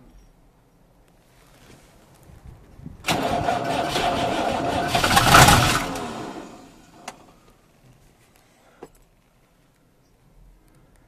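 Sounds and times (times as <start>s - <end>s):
tractor diesel engine starting: 3.1s - 7.4s.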